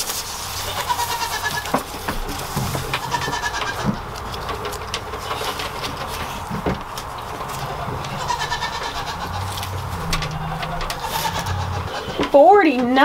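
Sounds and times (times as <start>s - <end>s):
goats bleating: 0.6s - 2.0s, 2.7s - 4.1s, 7.5s - 12.4s.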